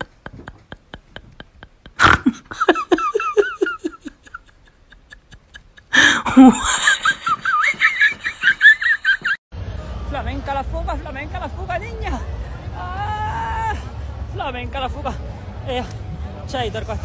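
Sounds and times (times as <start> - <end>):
person laughing: 0.0 - 9.4.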